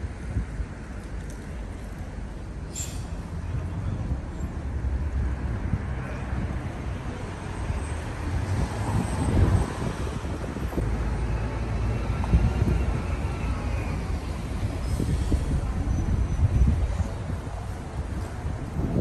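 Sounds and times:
wind buffeting microphone: 0:03.3 - 0:19.0.

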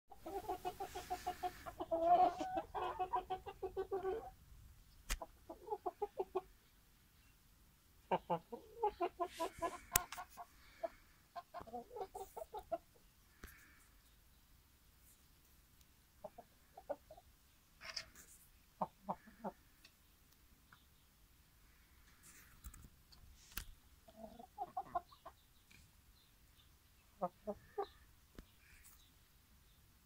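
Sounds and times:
chickens clucking: 0:00.1 - 0:04.4, 0:05.1 - 0:06.8, 0:08.0 - 0:14.2, 0:16.2 - 0:21.0, 0:22.0 - 0:26.0, 0:26.6 - 0:29.1.

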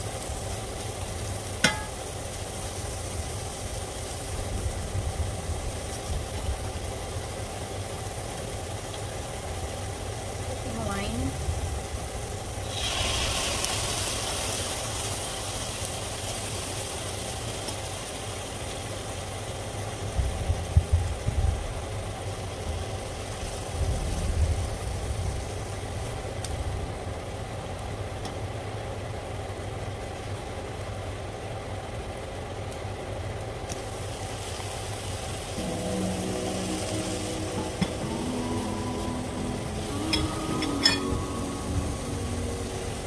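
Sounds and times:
wine hissing in hot pan: 0:00.0 - 0:19.3, 0:33.9 - 0:43.0
onion sizzling in oil: 0:00.0 - 0:28.4, 0:33.6 - 0:43.0
steady low hum: 0:35.0 - 0:43.0.

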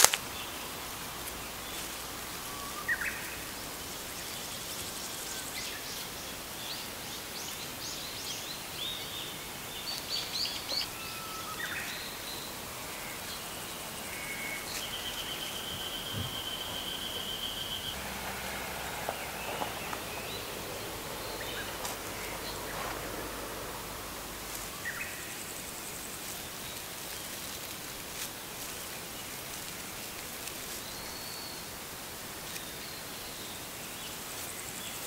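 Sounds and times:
background hiss: 0:00.0 - 0:35.0
bird calls: 0:09.8 - 0:27.7.

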